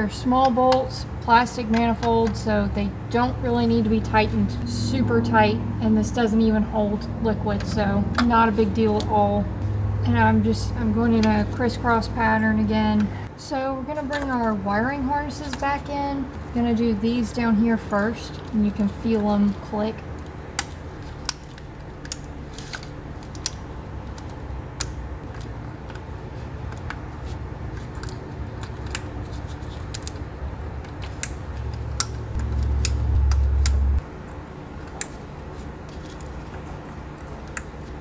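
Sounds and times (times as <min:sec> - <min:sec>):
steady low hum: 0:00.0 - 0:38.0
low rumble: 0:03.4 - 0:08.8, 0:31.6 - 0:34.1.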